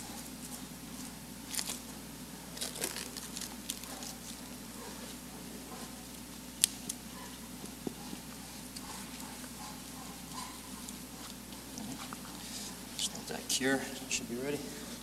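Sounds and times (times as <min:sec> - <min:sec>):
plastic wrap crinkling: 0:01.5 - 0:01.9, 0:02.5 - 0:04.5.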